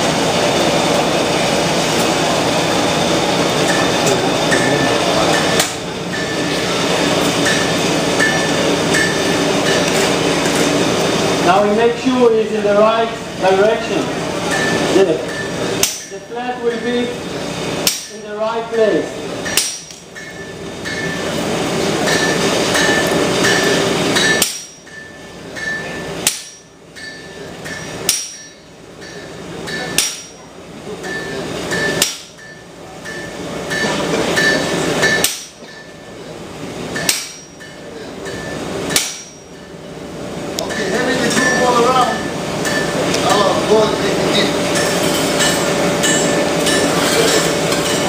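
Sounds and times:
hammer striking steel on anvil: 4.5s - 6.6s, 7.4s - 10.1s, 14.5s - 16.9s, 17.8s - 18.3s, 19.4s - 21.4s, 22.0s - 36.1s, 36.9s - 39.7s, 40.6s - 43.5s, 44.7s - 48.0s.

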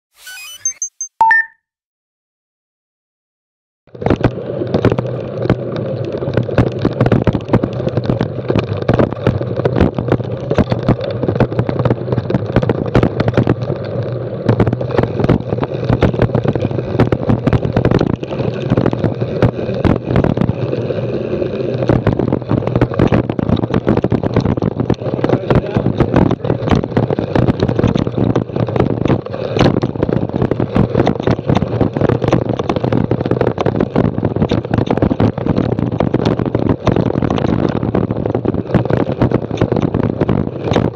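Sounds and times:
wind noise: 4.0s - 40.9s
bike rattling over rocky ground: 21.7s - 40.9s.

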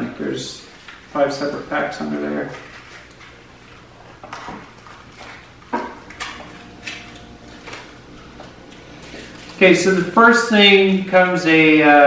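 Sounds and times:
packaging rustling: 2.4s - 10.1s.

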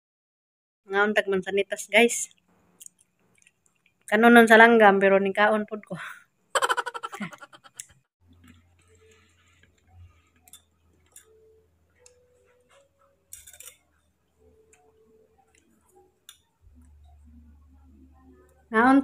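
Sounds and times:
faint low hum: 6.7s - 19.0s.

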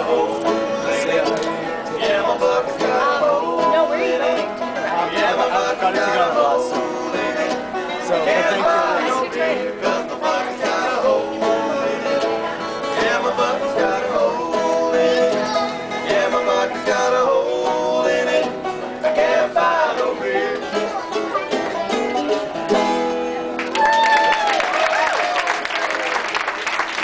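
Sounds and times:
folk tune on banjo and guitar: 0.0s - 23.8s.

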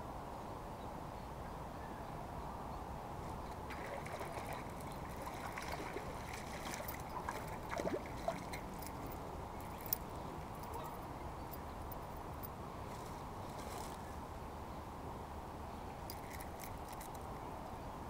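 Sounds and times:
water splashing and sloshing: 3.2s - 10.8s.

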